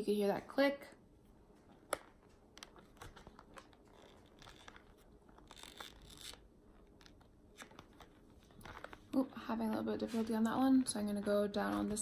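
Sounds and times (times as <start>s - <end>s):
plastic lens rubbing and scraping: 1.7s - 10.5s.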